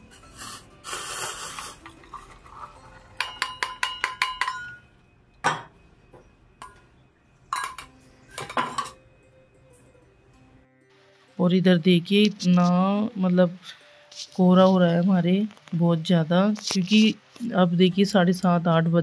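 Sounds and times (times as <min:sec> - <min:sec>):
tea pouring: 0:00.9 - 0:03.4
metal strainer tapping mug: 0:03.2 - 0:05.6.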